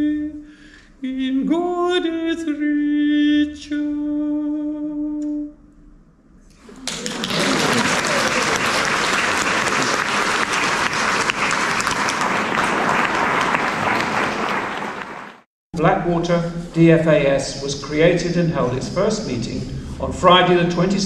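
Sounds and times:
audience applauding: 6.6s - 15.5s.

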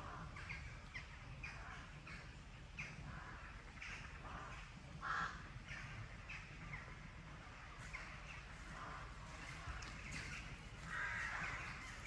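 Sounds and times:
crow cawing: 4.4s - 5.4s, 10.8s - 12.0s.

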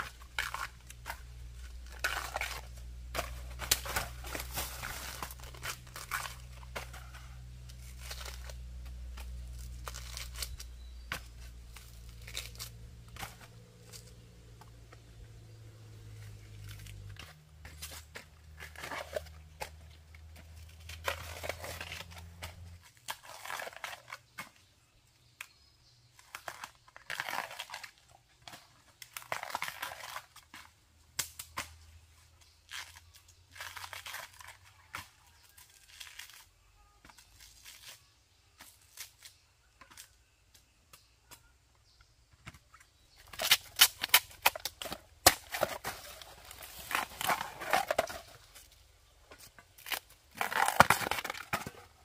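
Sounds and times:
dry plants rustling and tearing: 0.0s - 14.4s, 16.2s - 24.3s, 26.2s - 40.1s, 43.2s - 52.0s.

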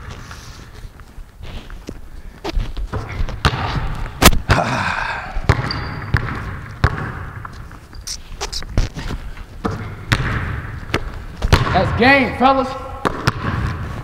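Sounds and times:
basketball bouncing on hardwood floor: 2.9s - 4.2s, 5.4s - 7.6s, 9.6s - 12.0s, 13.0s - 13.8s.

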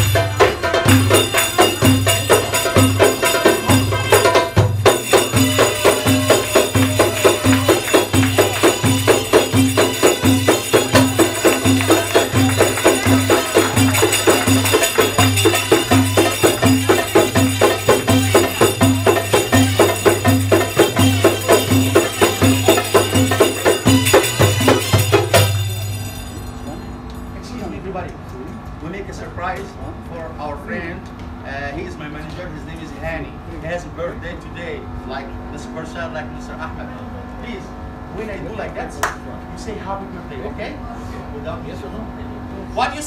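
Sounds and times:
frame drums with jingles: 0.0s - 28.0s.

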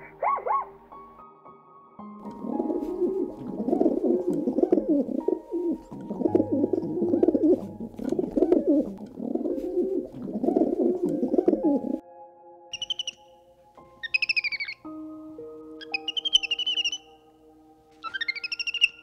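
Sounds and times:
dove cooing: 2.4s - 12.0s.

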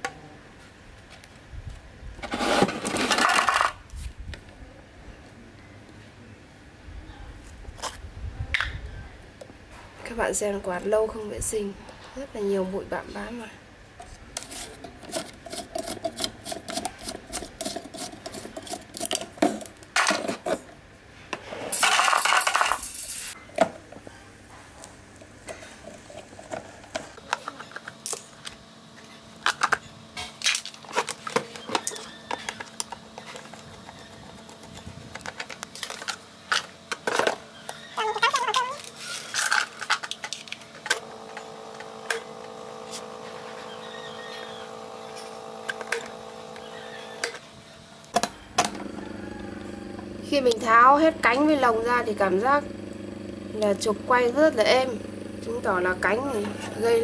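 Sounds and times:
electric motor humming: 40.8s - 57.0s.

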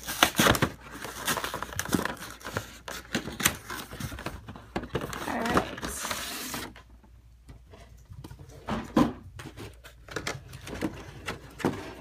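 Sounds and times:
stiff plastic clicks and crinkles: 0.0s - 6.8s.

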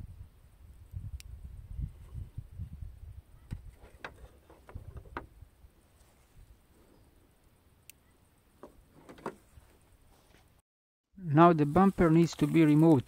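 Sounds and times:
wind buffeting microphone: 0.0s - 5.7s.

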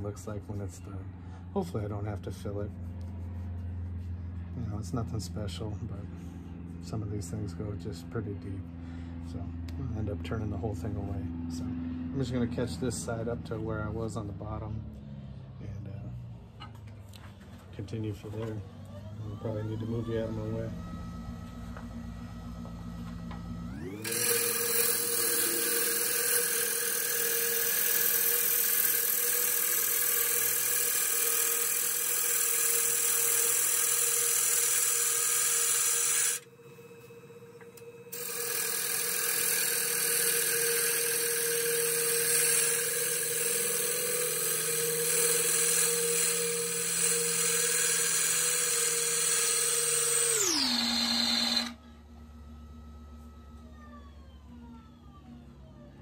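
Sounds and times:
lathe motor whine: 17.6s - 56.0s.

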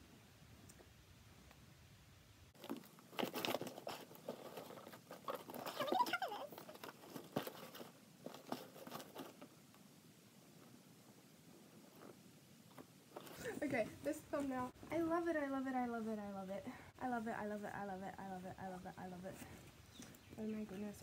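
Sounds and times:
cardboard box rustling and crinkling: 2.6s - 9.5s.

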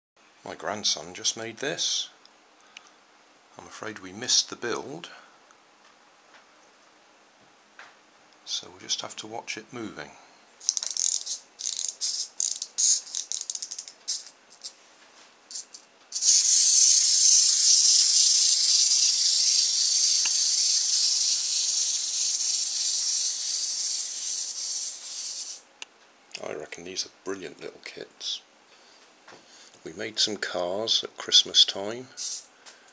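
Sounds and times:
ratchet clicking while winding: 10.6s - 14.7s, 15.5s - 25.6s, 32.2s - 32.4s
clockwork motor whirring: 15.5s - 25.6s.

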